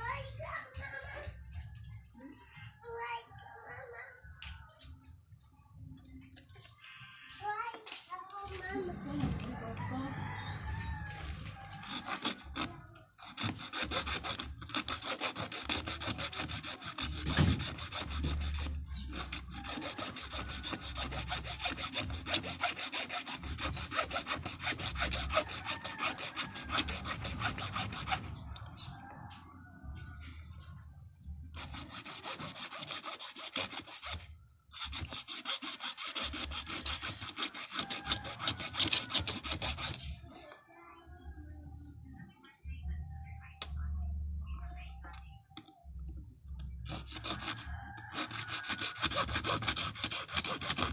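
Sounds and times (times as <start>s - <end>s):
hacksaw blade sawing: 11.3s - 28.3s, 31.6s - 40.1s, 46.9s - 50.9s.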